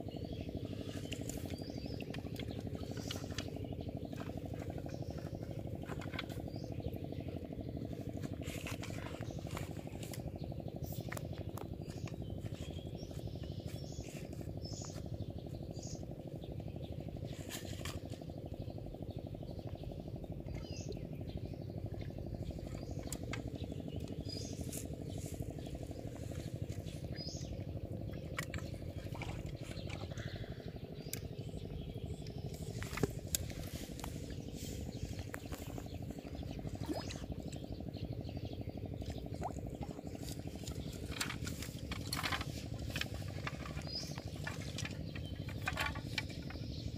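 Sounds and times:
bird chirps: 0.0 - 46.9
steady low hum: 0.0 - 46.9
bamboo fishing rods clicking: 40.6 - 46.5.

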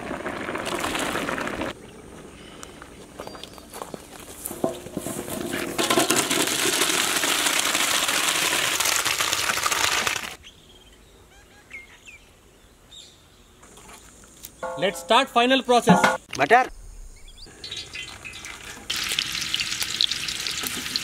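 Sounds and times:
water poured off splashing: 0.0 - 1.7, 5.8 - 10.4
bird chirps: 16.2 - 18.8.

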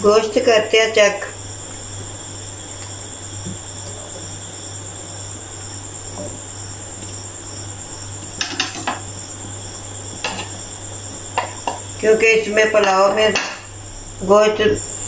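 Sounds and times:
broth boiling in a pot: 0.0 - 15.0
wooden spoon knocking pot: 11.4 - 11.9, 12.8 - 13.7.

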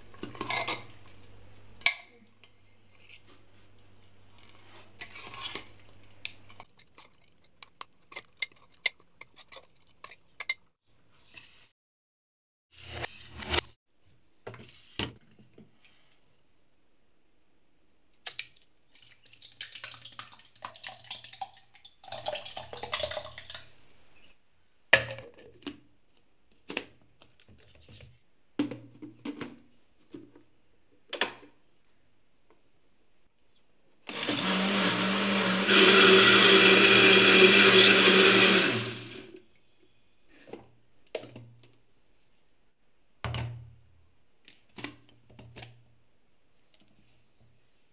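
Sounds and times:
mixer grinder motor running: 34.1 - 39.4.

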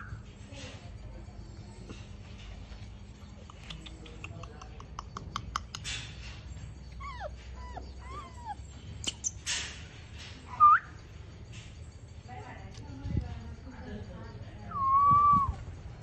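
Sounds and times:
puppies whimpering: 6.4 - 9.5.

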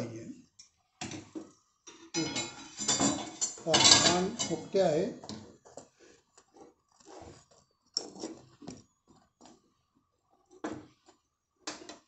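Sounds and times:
metal spatula scraping and tapping: 0.6 - 5.5.

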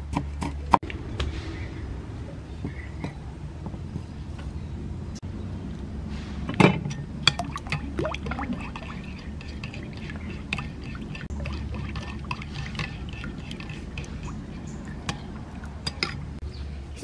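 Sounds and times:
liquid sloshing: 7.2 - 16.4.

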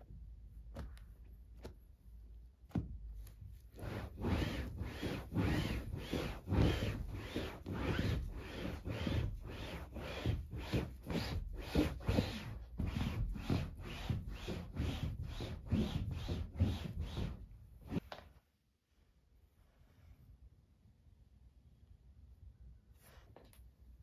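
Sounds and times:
cloth rubbing sofa upholstery: 3.6 - 18.0.

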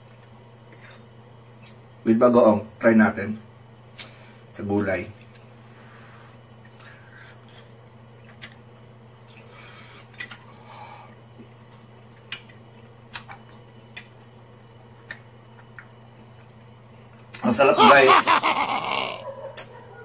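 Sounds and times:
eating clicks and smacks: 0.0 - 1.9, 6.6 - 17.4, 19.5 - 19.8
steady low hum: 0.0 - 20.0.

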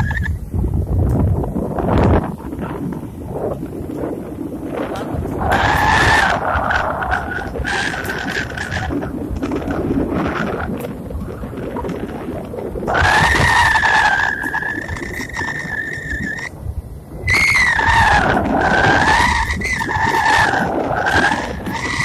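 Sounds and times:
high whistling tone: 0.0 - 0.4, 12.9 - 16.6, 17.2 - 22.0
wind over microphone: 0.0 - 22.0.

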